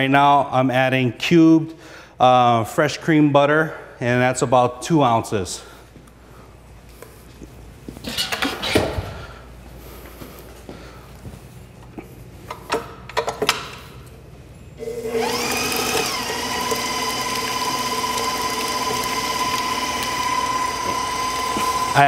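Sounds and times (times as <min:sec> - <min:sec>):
stand mixer motor whine: 0:14.8 - 0:22.0.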